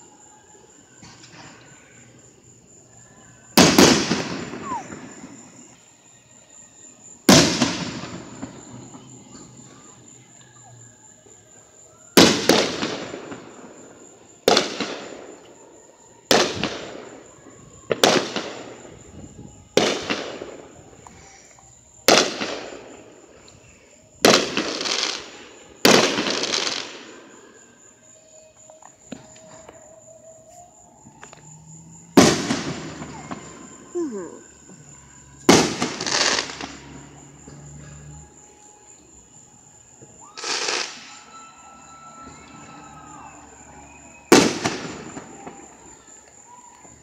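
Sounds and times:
fireworks booming: 0:03.6 - 0:05.7, 0:07.3 - 0:10.0, 0:12.2 - 0:15.4, 0:17.9 - 0:21.0, 0:22.0 - 0:23.5, 0:24.2 - 0:27.4, 0:31.8 - 0:38.7, 0:40.0 - 0:46.3.

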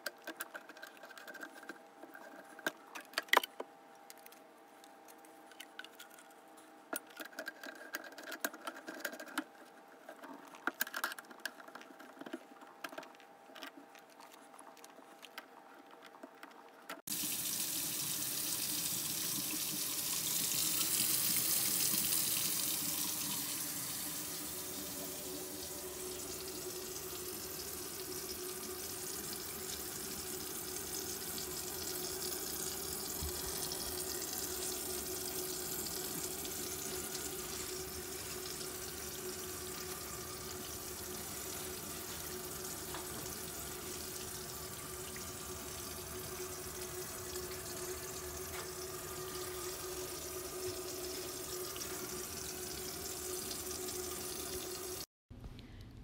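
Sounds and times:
tap water running down drain: 0:17.1 - 0:55.1.

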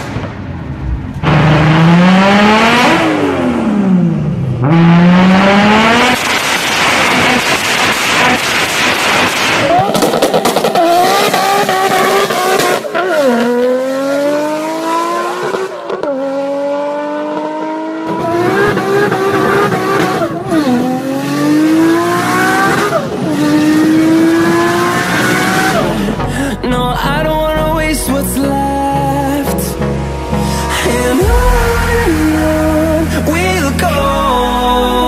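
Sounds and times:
car engine accelerating through gears: 0:00.0 - 0:26.4.

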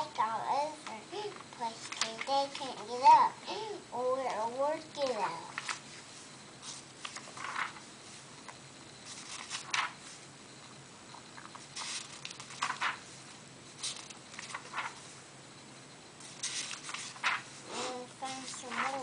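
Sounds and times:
book pages rustling: 0:00.8 - 0:03.1, 0:05.0 - 0:10.3, 0:11.2 - 0:15.2, 0:16.2 - 0:19.0.

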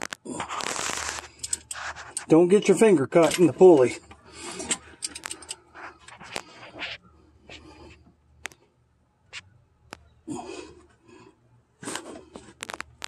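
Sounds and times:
socket wrench clicks and scrapes: 0:00.8 - 0:02.4, 0:03.2 - 0:06.8
person breathing heavily: 0:04.2 - 0:05.0, 0:10.3 - 0:12.4.

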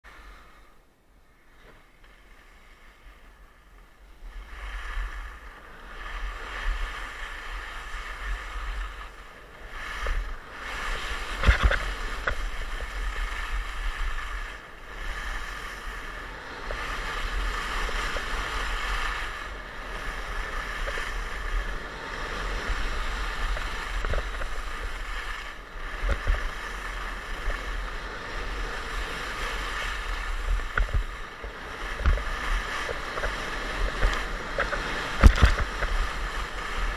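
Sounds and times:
skis carving on snow: 0:00.1 - 0:36.9
wind buffeting microphone: 0:04.0 - 0:36.9.

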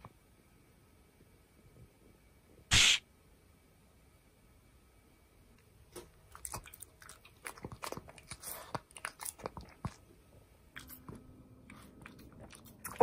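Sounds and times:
dog chewing wet crunching: 0:06.3 - 0:10.1, 0:10.8 - 0:13.0.

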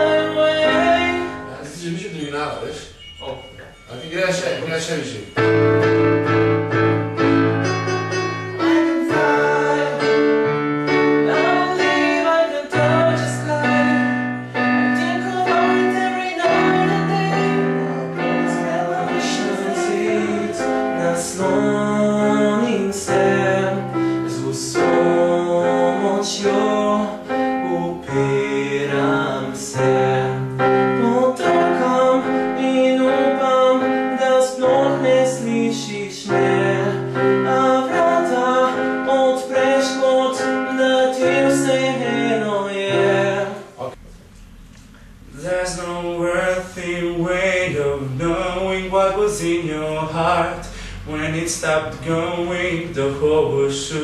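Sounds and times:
person singing: 0:00.0 - 0:01.6, 0:07.8 - 0:44.0
electronic keyboard chords: 0:00.0 - 0:44.3.

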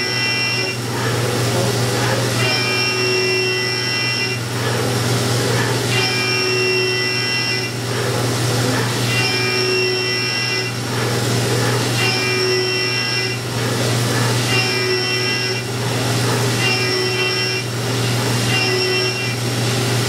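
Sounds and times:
high whining cutter tone: 0:00.0 - 0:20.0
low machine hum: 0:00.0 - 0:20.0.

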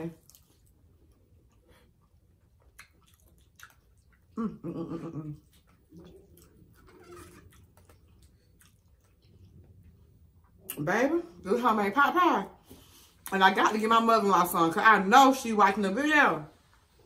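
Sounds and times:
chewing with wet mouth clicks: 0:00.2 - 0:04.4, 0:05.4 - 0:06.8, 0:07.4 - 0:10.8
person humming mmm: 0:04.4 - 0:05.5.

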